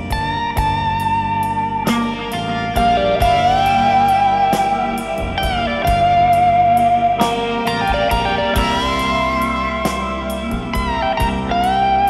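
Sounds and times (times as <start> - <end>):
sliding melody over steady beat: 0.0 - 12.0.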